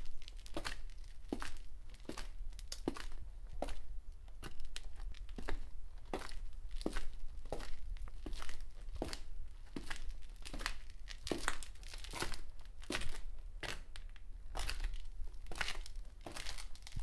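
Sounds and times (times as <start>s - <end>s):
footsteps crunching: 14.6s - 17.0s.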